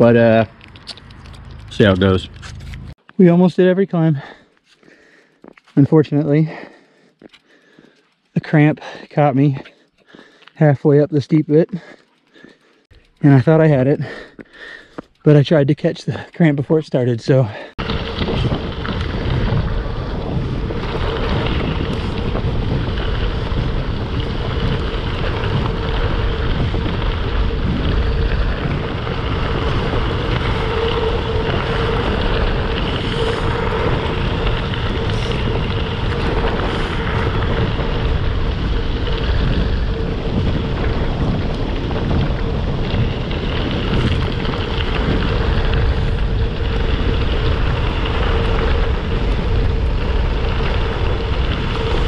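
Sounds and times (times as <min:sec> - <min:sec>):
bike tyres rolling on gravel: 0:00.0 - 0:52.0
wind buffeting microphone: 0:17.7 - 0:52.0.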